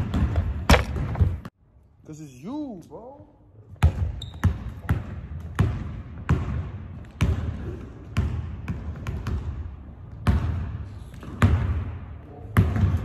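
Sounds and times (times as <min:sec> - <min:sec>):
basketball bouncing on wooden floor: 0:00.0 - 0:01.5, 0:03.7 - 0:12.0.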